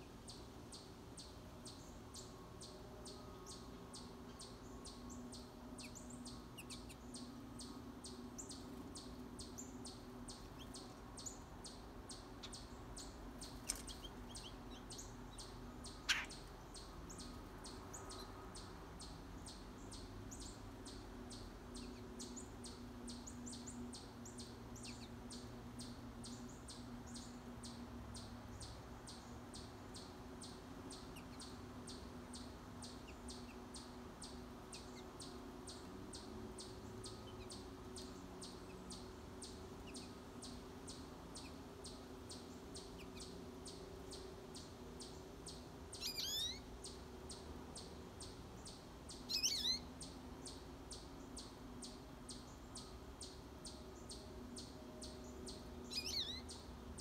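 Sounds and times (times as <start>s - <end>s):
birds chirping: 0.0s - 57.0s
faint low hum: 0.0s - 57.0s
sharp downward-sweeping bird call: 49.3s - 49.8s.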